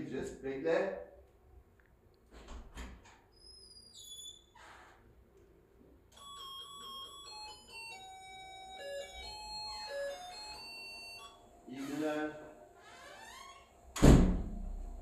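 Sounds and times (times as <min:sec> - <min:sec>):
electronic doorbell chime tune: 0:06.1 - 0:12.8.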